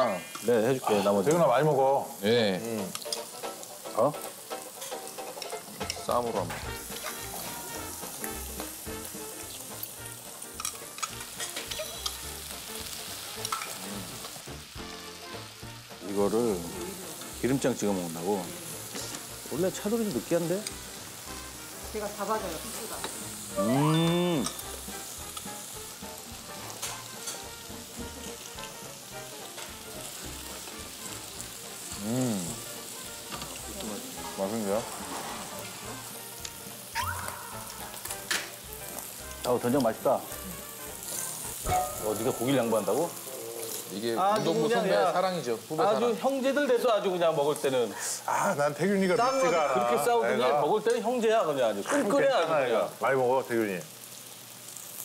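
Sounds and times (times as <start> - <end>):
meat sizzling on a grill: 0.0 - 55.0
man humming: 23.6 - 24.6, 31.9 - 32.7.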